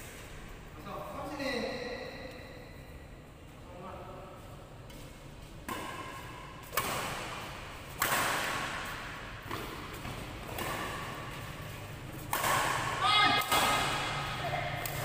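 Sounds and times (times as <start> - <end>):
racket hitting shuttlecock: 4.9 - 15.0.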